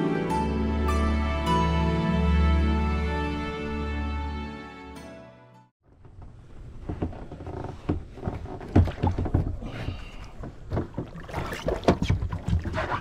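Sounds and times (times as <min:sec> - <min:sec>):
wind: 0:05.8 - 0:13.0
water rumble: 0:08.0 - 0:13.0.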